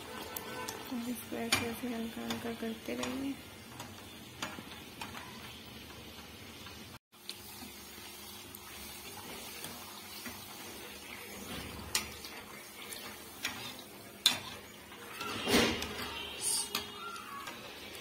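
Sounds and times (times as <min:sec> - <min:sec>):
bread deep-frying in oil: 0:00.0 - 0:18.0
skimmer clicking against pan: 0:00.4 - 0:06.0.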